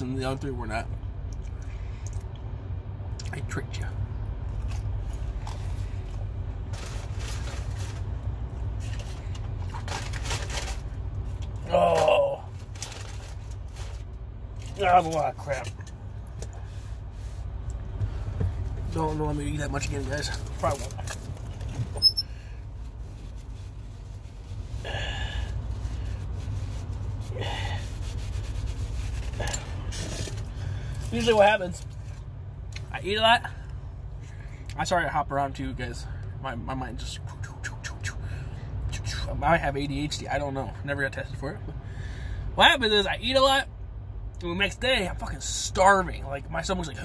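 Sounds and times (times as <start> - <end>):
low rumble inside car: 0.0 - 47.0
steady low hum: 0.0 - 47.0
man breathing heavily: 24.8 - 26.4, 27.2 - 28.0, 29.6 - 31.1, 41.8 - 42.6.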